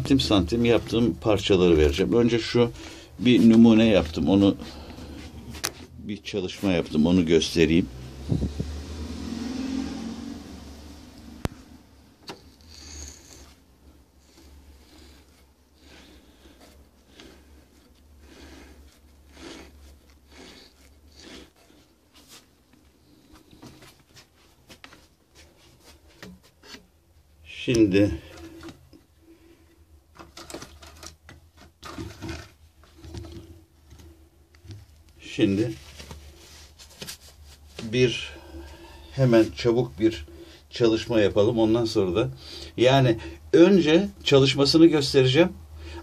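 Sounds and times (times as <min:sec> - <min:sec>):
rustling: 0:27.9 - 0:40.5.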